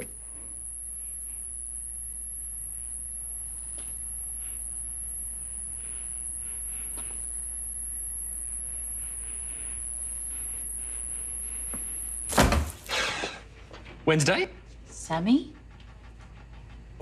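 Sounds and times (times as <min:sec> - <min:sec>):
high-pitched whine: 0:00.0 - 0:12.4
low hum: 0:00.0 - 0:12.4.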